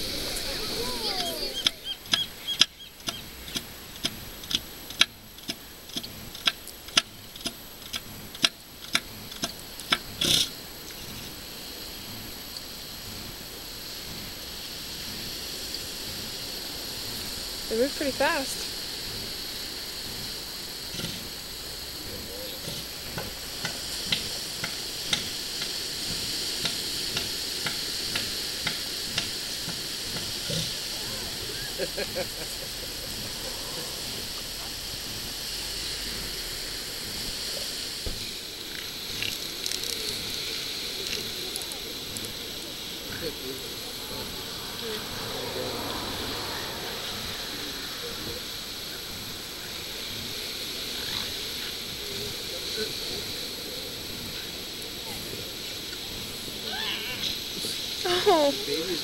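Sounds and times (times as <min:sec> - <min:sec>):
steady hiss: 0:00.0 - 0:59.0
elephant seal clapping pulses: 0:22.6 - 0:31.5.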